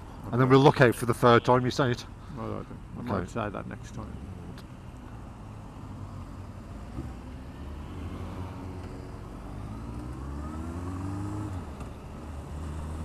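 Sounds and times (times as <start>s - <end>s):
motorcycle engine accelerating: 6.9s - 13.0s.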